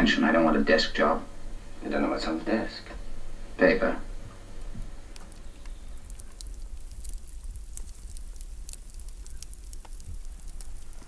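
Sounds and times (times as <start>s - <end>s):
campfire crackling: 0.0s - 11.0s
low steady rumble: 0.0s - 11.0s
fire pops and snaps: 4.2s - 11.0s.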